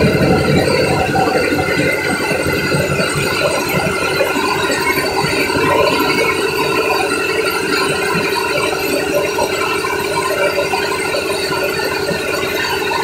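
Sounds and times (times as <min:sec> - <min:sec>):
ferry engine droning: 0:00.0 - 0:13.0.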